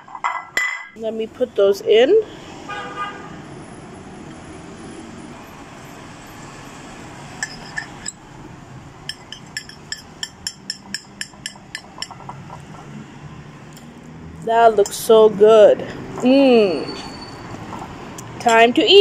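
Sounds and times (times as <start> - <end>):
fork clinking on ceramic plate: 7.4 - 8.2, 9.1 - 12.8.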